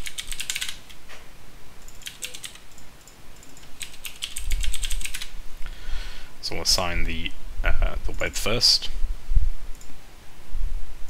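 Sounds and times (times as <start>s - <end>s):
computer keyboard typing: 0.0s - 1.0s, 1.8s - 5.3s.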